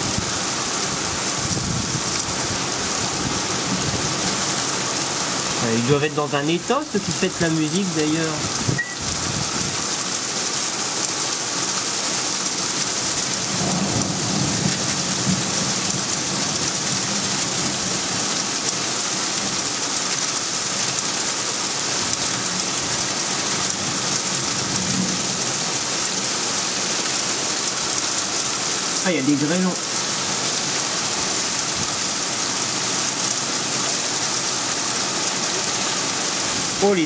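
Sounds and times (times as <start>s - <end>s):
heavy rain pouring: 0.0s - 37.0s
thunder rumbling: 13.5s - 16.5s.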